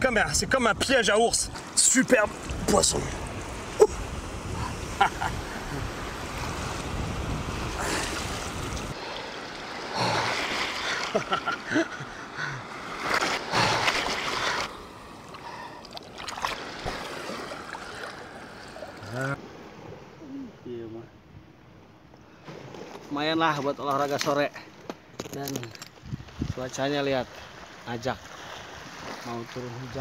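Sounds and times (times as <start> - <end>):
surf breaking and washing: 0.2 - 20.2, 26.4 - 30.0.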